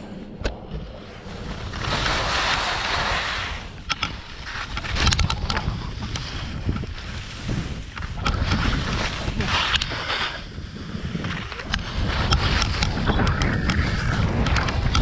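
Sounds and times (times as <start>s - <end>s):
wind buffeting microphone: 0.0s - 15.0s
skis scraping over lumpy snow: 0.8s - 15.0s
sharp clacks: 11.2s - 15.0s.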